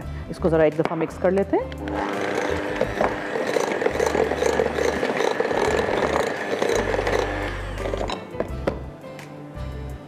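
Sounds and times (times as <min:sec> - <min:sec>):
electric hand mixer whining: 0:01.8 - 0:08.6.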